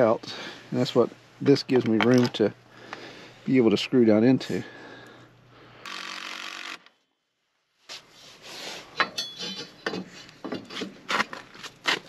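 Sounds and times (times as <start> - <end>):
cordless drill driving screw: 5.8 - 6.9.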